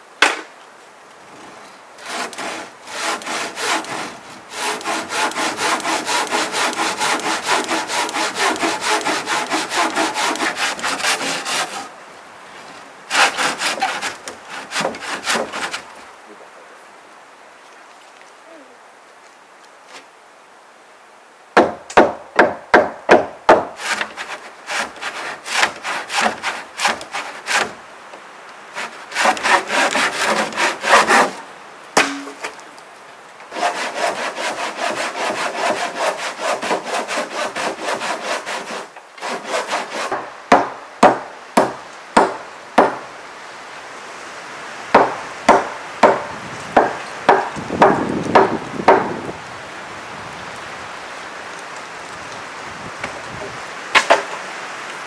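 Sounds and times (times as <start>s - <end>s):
handsaw cutting through timber: 2.0s - 11.9s, 13.1s - 15.9s, 23.5s - 27.8s, 28.7s - 31.4s, 33.5s - 40.6s.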